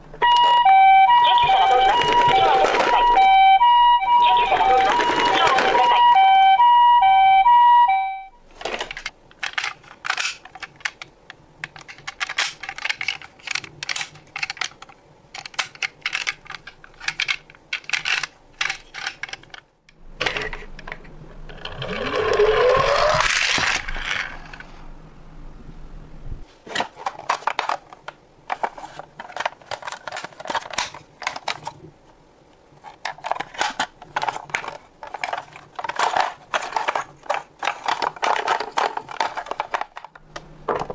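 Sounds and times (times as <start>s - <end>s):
toy electronic two-tone siren: 0.2s - 8.3s
toy parts clicking and rattling: 8.6s - 19.6s, 20.2s - 24.6s, 27.1s - 31.8s, 32.8s - 40.2s
toy car rolling whine: 21.4s - 24.7s.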